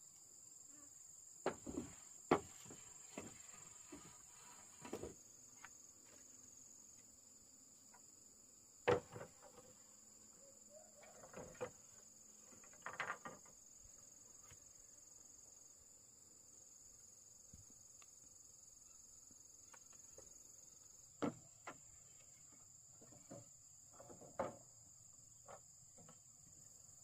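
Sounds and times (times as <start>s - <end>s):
knocks and rustles: 1.4s - 6.3s, 8.8s - 9.8s, 11.0s - 13.6s, 21.2s - 24.7s.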